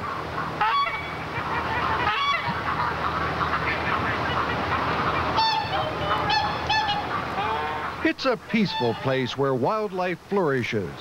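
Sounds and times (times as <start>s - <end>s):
geese honking: 0.0s - 10.1s
steady background noise: 0.0s - 11.0s.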